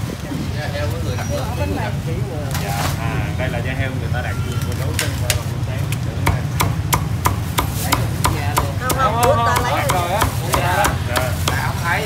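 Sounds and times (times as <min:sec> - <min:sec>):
cleaver chopping on wooden block: 0:06.2 - 0:11.7.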